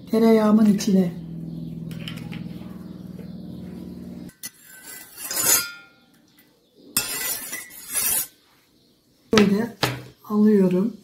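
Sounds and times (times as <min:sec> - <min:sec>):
steady low hum: 0:00.0 - 0:04.3
metal spoon scraping a pot: 0:04.3 - 0:06.0, 0:07.0 - 0:08.4.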